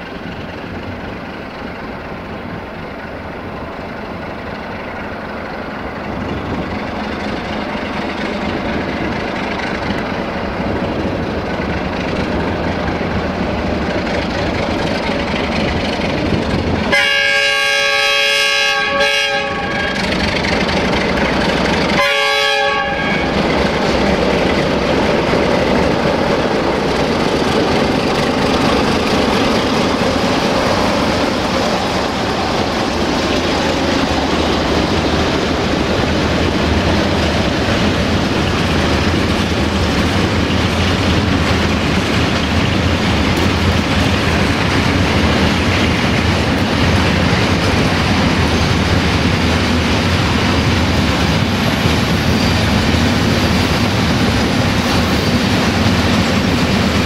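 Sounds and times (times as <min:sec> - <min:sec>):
diesel locomotive passing: 0:00.0 - 0:57.0
locomotive horn blasts: 0:16.9 - 0:20.1, 0:22.0 - 0:23.4.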